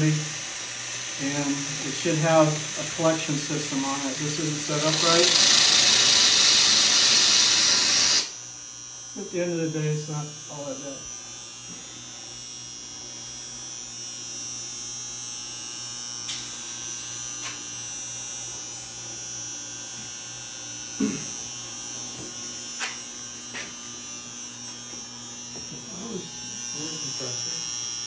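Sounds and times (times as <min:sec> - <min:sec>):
electrical hum with high whine: 0:00.0 - 0:28.0.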